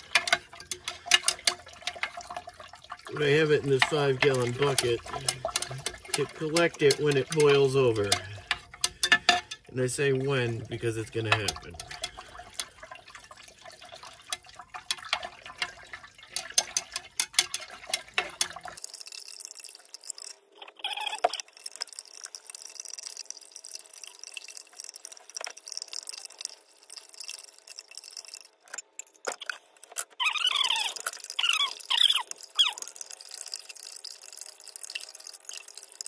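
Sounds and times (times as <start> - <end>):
glass rod clinking in beaker: 18.8 - 35.8
faint squeaks: 20.6 - 21.4, 29.3 - 32.9.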